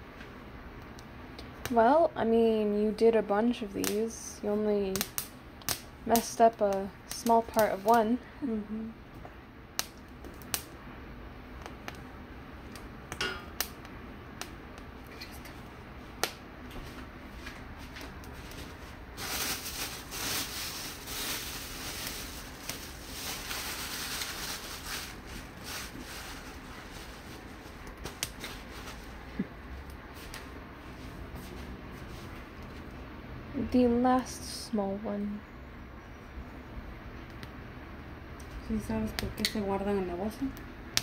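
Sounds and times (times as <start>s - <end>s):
gas flame hissing: 0.0s - 32.9s
metal tongs tapping stove grate: 13.1s - 13.7s
rough hiss with rapid crackles: 18.2s - 29.3s.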